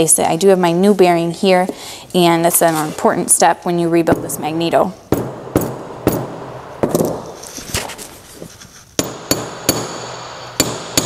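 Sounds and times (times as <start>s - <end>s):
hammer striking metal drift: 5.1s - 7.4s, 9.0s - 11.0s.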